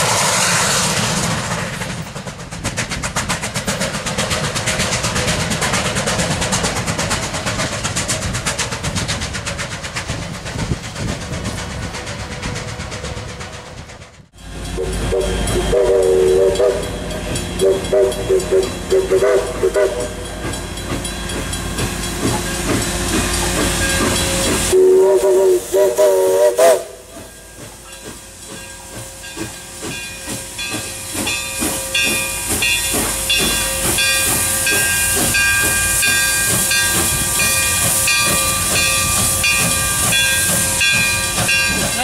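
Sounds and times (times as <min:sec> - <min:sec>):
steam hissing: 0:00.0 - 0:42.0
steam locomotive exhaust chuffs: 0:00.0 - 0:42.0
steam locomotive chime whistle: 0:14.4 - 0:42.0.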